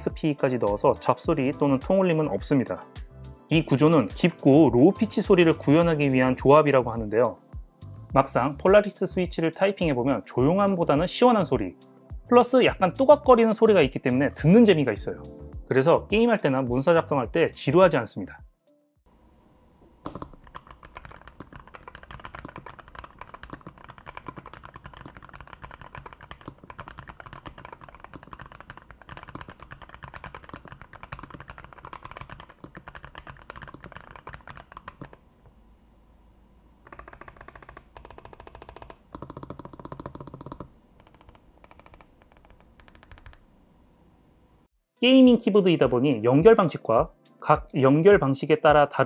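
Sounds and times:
mechanical keyboard typing: 0:20.0 - 0:35.2, 0:36.8 - 0:43.4.

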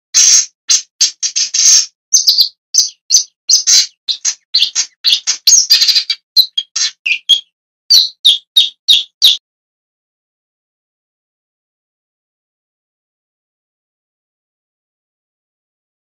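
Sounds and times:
shrike calling: 0:01.7 - 0:09.4.

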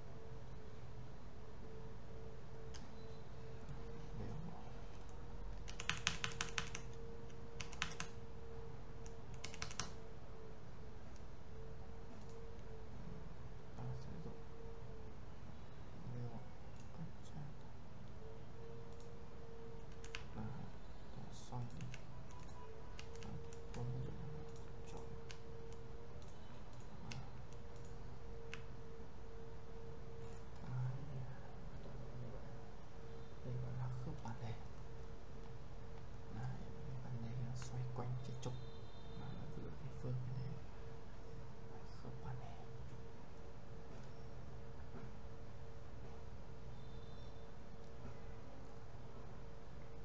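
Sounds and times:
faint steady hum: 0:00.0 - 0:50.0
computer keyboard typing: 0:02.6 - 0:08.3, 0:08.9 - 0:10.1, 0:12.0 - 0:12.7, 0:18.9 - 0:28.7.

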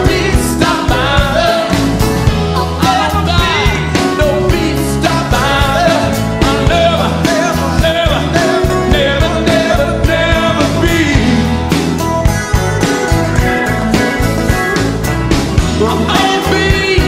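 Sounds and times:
person singing: 0:00.0 - 0:11.8, 0:15.6 - 0:17.0
bass: 0:00.0 - 0:17.0
drums: 0:00.0 - 0:17.0
electric guitars: 0:00.0 - 0:17.0.

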